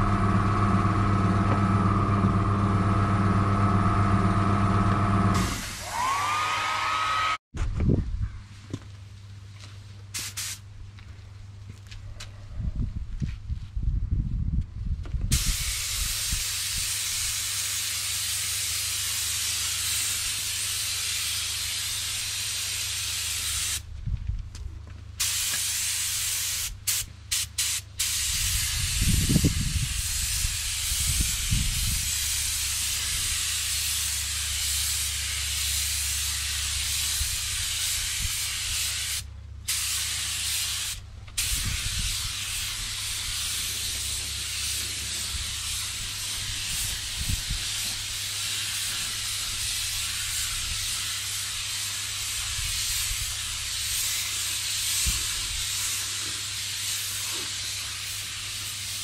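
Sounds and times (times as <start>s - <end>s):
air spray gun hissing: 5.4s - 6.1s, 10.2s - 10.6s, 15.3s - 23.8s, 25.2s - 59.0s.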